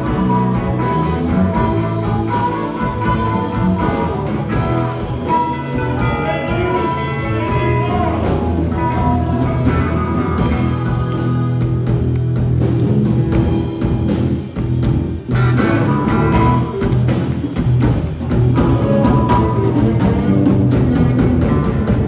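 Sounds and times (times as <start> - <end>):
harmonica: 0.0 - 9.7
blues rock band playing: 0.0 - 22.0.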